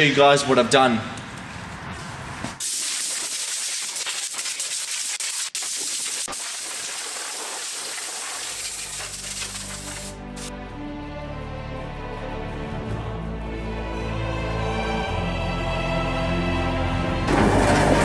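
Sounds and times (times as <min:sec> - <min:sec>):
air blow gun hissing: 0:02.6 - 0:10.5
music: 0:08.9 - 0:18.0.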